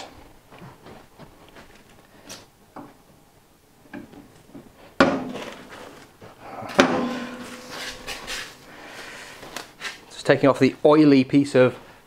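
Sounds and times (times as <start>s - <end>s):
metallic clunks with ringing: 6.7s - 8.3s.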